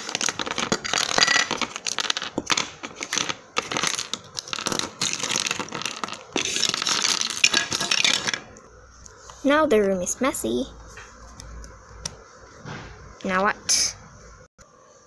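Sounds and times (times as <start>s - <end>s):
plastic toys clattering on wood: 0.0s - 8.4s.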